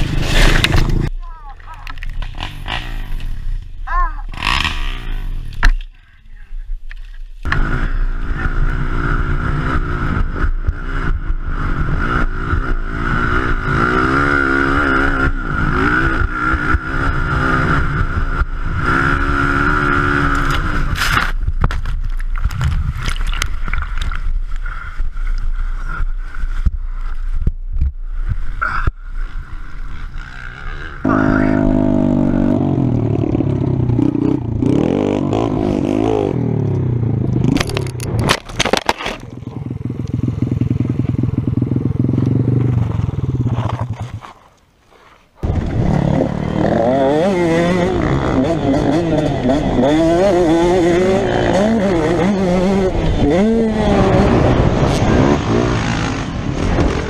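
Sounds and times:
dirt bike engine revving: 2.2s - 3.5s, 4.3s - 5.5s, 7.5s - 21.0s, 29.1s - 38.0s, 45.4s - 57.0s.

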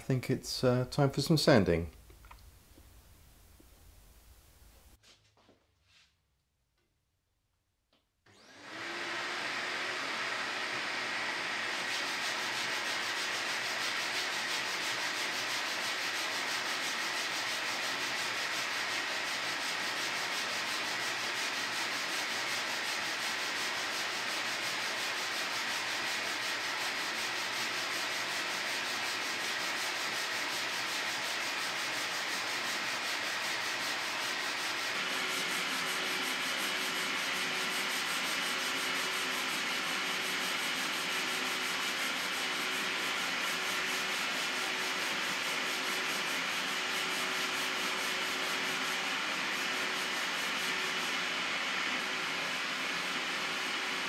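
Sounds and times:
abrasive cloth rasping on wood: 11.7s - 51.3s.

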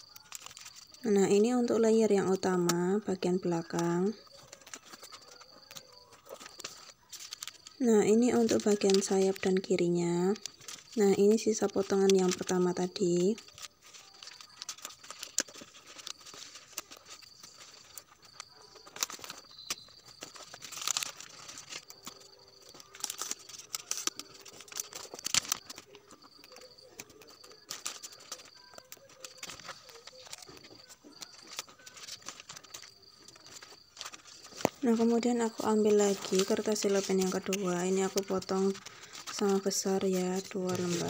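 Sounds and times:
cellophane crinkling and rustling: 0.0s - 41.0s.

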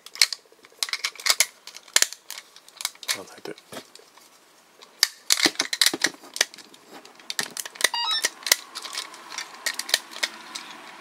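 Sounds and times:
plastic toy clicks and rattles: 0.0s - 3.6s, 5.0s - 11.0s
high chirp: 7.9s - 8.3s.

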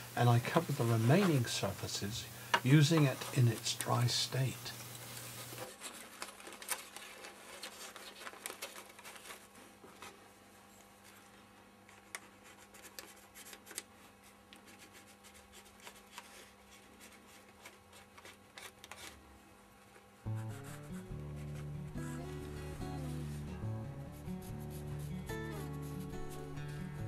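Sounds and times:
faint steady hum: 0.0s - 27.0s
tissue paper rustling: 2.7s - 11.3s
pencil scratching on tissue paper: 11.9s - 19.2s, 20.3s - 27.0s.

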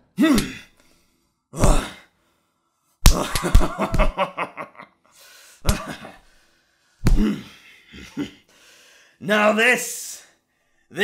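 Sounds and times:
punches and smacks: 0.2s - 0.6s, 3.0s - 4.2s, 5.6s - 6.1s, 7.0s - 7.4s.

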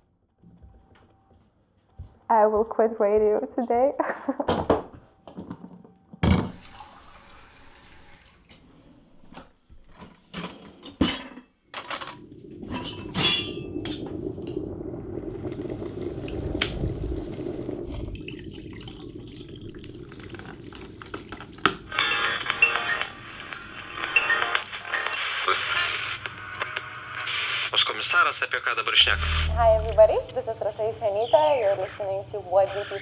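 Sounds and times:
cups clinking: 11.1s - 14.1s
coffee pouring into mug: 12.2s - 21.9s.

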